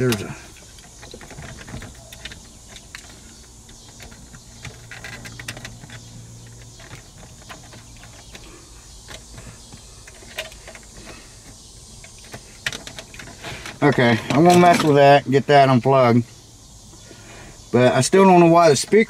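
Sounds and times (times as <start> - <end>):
plastic connectors clicking and rattling: 0.0 - 15.0.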